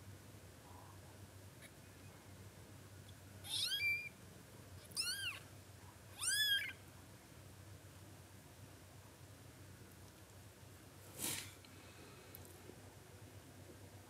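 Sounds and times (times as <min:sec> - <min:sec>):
kitten meowing: 0:03.4 - 0:04.1, 0:04.8 - 0:05.4, 0:06.2 - 0:06.8.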